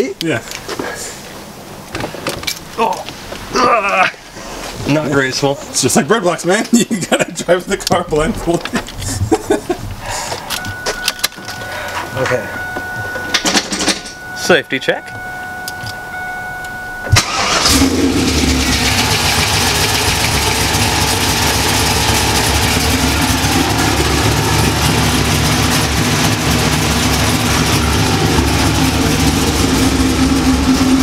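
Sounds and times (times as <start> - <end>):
car engine idling: 9.5 - 31.0
car engine cranking: 10.4 - 31.0
steady tone: 10.4 - 31.0.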